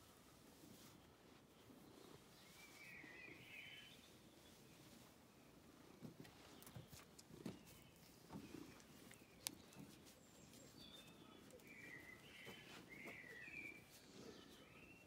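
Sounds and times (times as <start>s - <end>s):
bird chirps: 7.5s - 15.0s.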